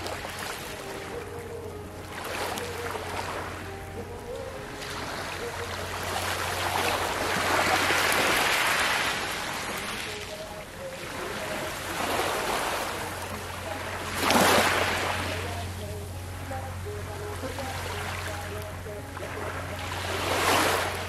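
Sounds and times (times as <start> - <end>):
small waves washing over pebbles: 6.1 - 15.6.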